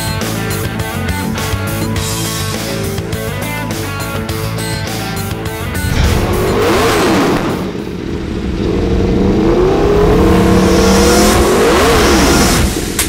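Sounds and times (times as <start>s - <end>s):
engine revving: 4.9s - 13.0s
sharp hit: 5.7s - 8.8s.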